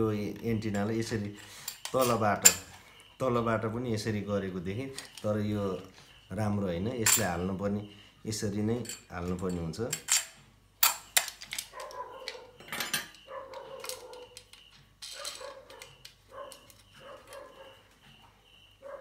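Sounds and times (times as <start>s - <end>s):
dog barking: 11.7s - 12.6s, 13.2s - 14.4s, 15.2s - 17.9s, 18.8s - 19.0s.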